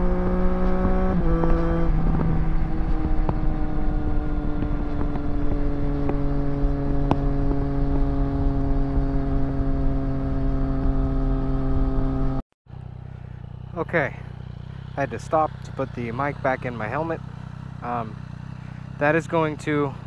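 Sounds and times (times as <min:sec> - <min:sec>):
wind rumble on microphone: 0:00.0 - 0:12.4
motorcycle engine at road speed: 0:00.0 - 0:20.0.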